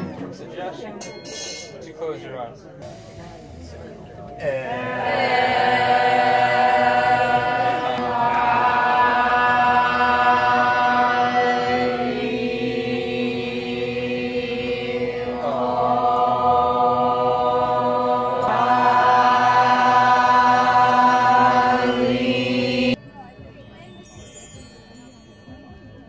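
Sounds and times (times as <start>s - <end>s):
steady low drone: 2.8s - 23.0s
voices chanting held notes: 4.3s - 23.0s.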